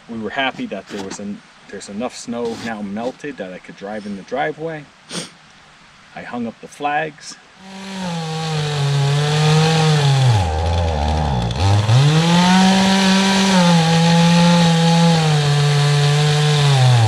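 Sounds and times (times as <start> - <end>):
chainsaw cutting tree: 7.6 - 17.0.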